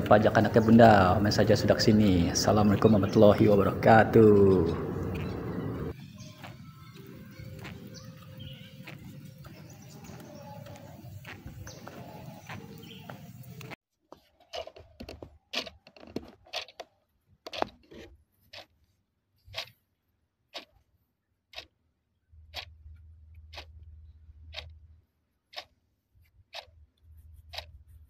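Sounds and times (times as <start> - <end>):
low hum: 0.0 - 10.1
clock-like ticking: 23.4 - 23.9, 24.5 - 24.8, 25.5 - 25.7.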